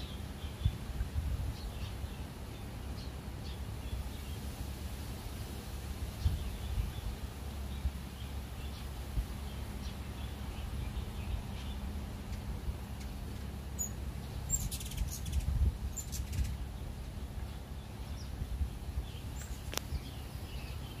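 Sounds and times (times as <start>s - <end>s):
steady low rumble: 0.0s - 21.0s
hummingbird chip notes: 9.5s - 21.0s
faint bird chirps: 13.8s - 21.0s.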